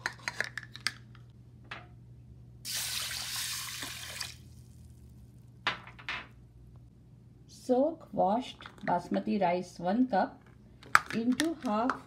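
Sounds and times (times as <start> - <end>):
water running into pot: 2.7 - 4.4.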